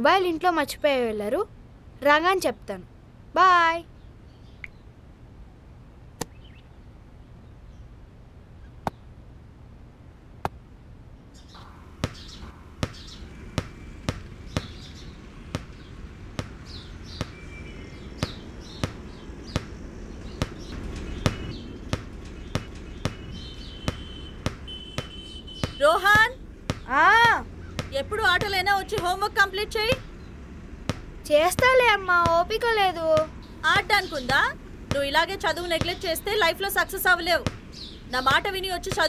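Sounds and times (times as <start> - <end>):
faint bird chirps: 5.9 - 7.9, 11.3 - 16.0, 16.6 - 26.2
ball bouncing on hard floor: 12.0 - 14.8, 15.5 - 17.4, 18.2 - 29.1.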